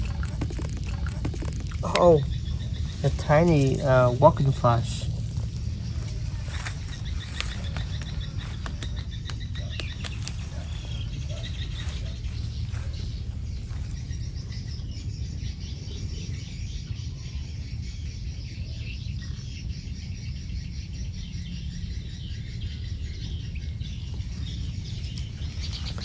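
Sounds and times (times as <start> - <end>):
low rumble: 0.0 - 18.4
birds chirping: 0.0 - 26.0
insects chirping: 0.0 - 26.0.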